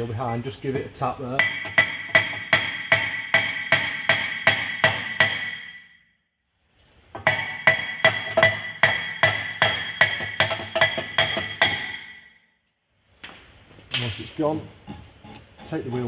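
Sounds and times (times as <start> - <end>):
hammer ringing on brake disc: 1.4 - 5.9, 7.3 - 12.3.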